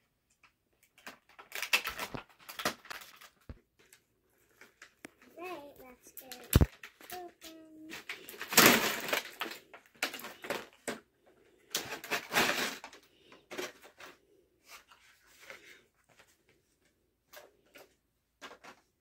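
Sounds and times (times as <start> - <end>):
small plastic pieces clicking: 0.3 - 3.9
plastic packaging crinkling: 0.7 - 11.0.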